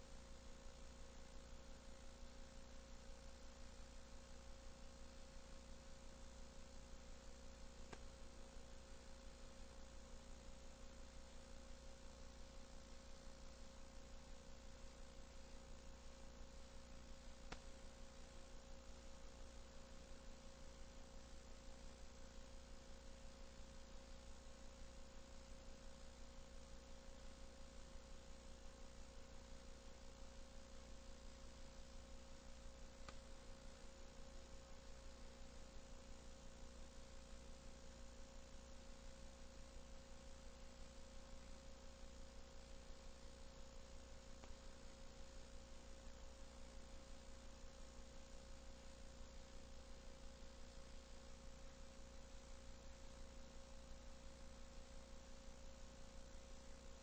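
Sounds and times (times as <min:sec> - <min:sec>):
low electrical hum and hiss: 0:00.0 - 0:57.0
faint click: 0:07.9 - 0:08.1, 0:17.5 - 0:17.7, 0:33.0 - 0:33.3, 0:44.4 - 0:44.6.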